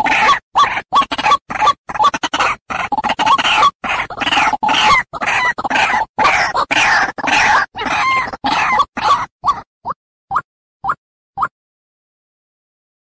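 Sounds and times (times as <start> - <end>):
waterhen harsh calls: 0.0 - 9.7.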